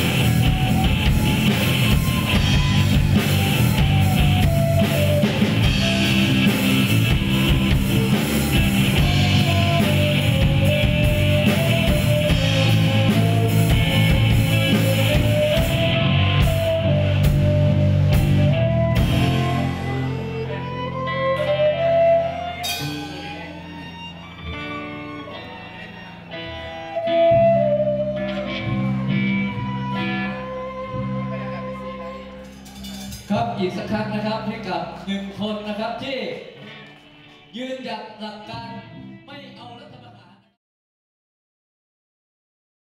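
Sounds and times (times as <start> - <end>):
violin melody: 0.0 - 32.7
bass guitar: 0.0 - 37.8
drums: 0.0 - 38.7
electric guitars: 0.0 - 39.3.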